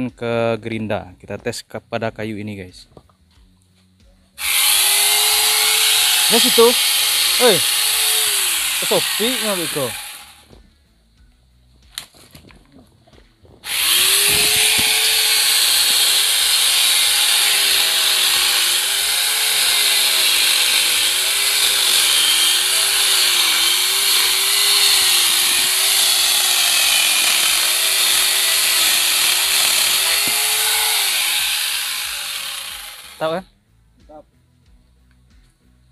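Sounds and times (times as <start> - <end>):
electric chainsaw cutting wood: 4.4 - 10.6, 13.6 - 33.4.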